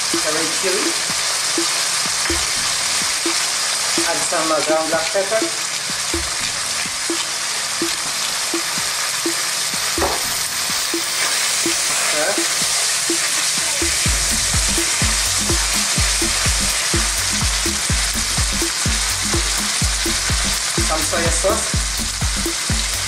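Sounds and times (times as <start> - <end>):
meat sizzling in oil: 0.0 - 23.0
heavy low knocks: 6.1 - 8.0.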